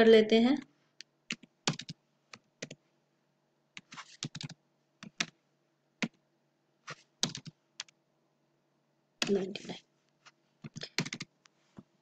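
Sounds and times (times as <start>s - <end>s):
computer keyboard typing: 1.2s - 2.8s, 3.8s - 5.4s, 6.0s - 6.2s, 6.9s - 8.0s, 10.6s - 11.4s.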